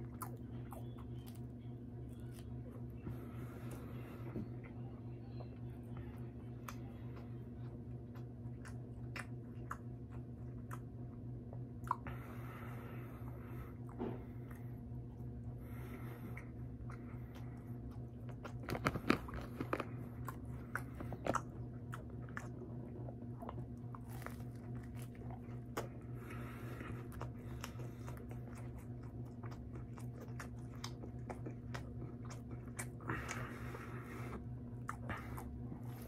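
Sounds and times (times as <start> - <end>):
steady low hum: 0.0 - 36.0
wet chewing: 0.0 - 36.0
crunchy bites of toasted bread: 18.3 - 26.0.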